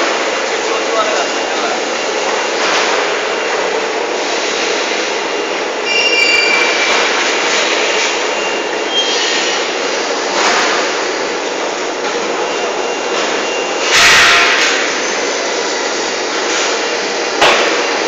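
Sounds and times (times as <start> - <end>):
factory machinery hissing and humming: 0.0 - 18.0
high squeals: 5.8 - 6.9.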